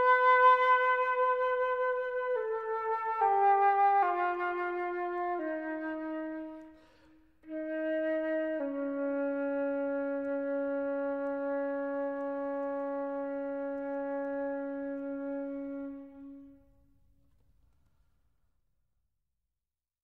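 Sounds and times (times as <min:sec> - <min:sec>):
flute holding long low note: 0:00.0 - 0:17.0
room echo: 0:00.0 - 0:18.4.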